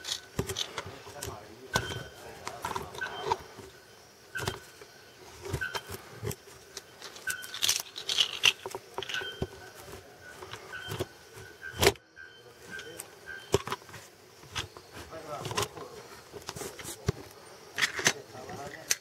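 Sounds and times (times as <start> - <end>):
bellbird metallic calls: 1.7 - 6.0, 6.8 - 8.3, 9.0 - 13.8.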